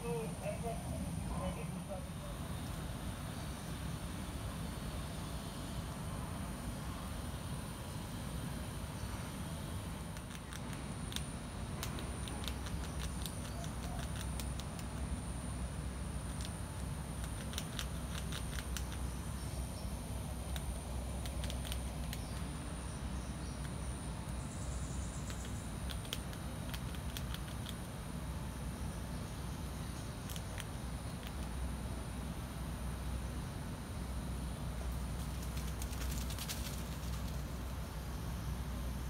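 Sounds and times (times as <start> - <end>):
steady low rumble: 0.0 - 39.0
crackling clicks in dry leaves: 10.1 - 15.1, 17.2 - 19.0.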